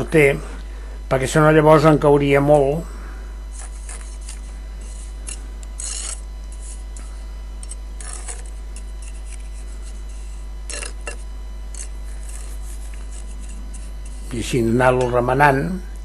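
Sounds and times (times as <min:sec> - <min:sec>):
steady low hum: 0:00.0 - 0:16.0
trowel scraping mortar on brick: 0:03.6 - 0:06.9, 0:07.6 - 0:14.3.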